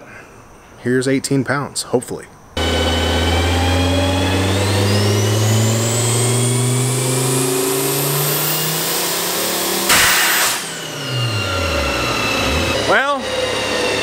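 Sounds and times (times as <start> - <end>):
car engine under full load: 2.6 - 14.0
loud hiss of boost blowoff: 6.8 - 13.0.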